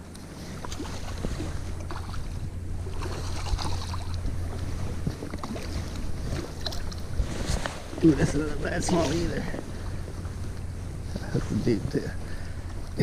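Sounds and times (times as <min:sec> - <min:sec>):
wind rumble on microphone: 0:00.0 - 0:13.0
fish splashing at the surface: 0:00.6 - 0:04.2.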